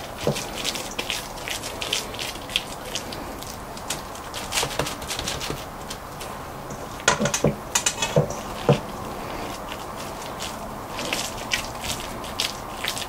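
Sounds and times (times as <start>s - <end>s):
hands patting mixture in bowl: 0.0s - 13.0s
soft rustling: 8.0s - 13.0s.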